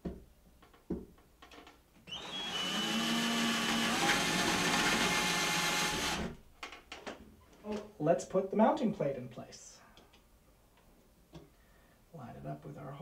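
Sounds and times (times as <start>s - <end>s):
power drill boring into wall: 2.1s - 6.4s.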